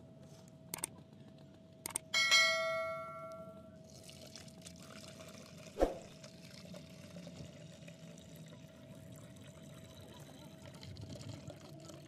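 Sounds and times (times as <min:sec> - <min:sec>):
liquid pouring into plastic jug: 0:03.9 - 0:12.0.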